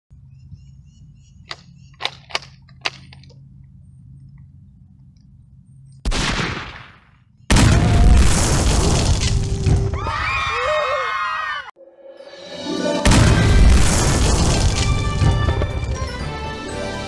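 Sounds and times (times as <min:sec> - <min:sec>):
loud gunshot: 0:06.1 - 0:09.3, 0:13.1 - 0:15.7
loud burst of noise: 0:13.0 - 0:15.2.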